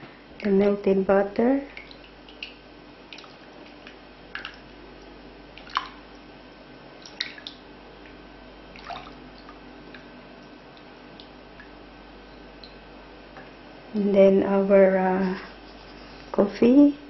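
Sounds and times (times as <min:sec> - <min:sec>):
soft liquid squishing: 0:01.6 - 0:12.9.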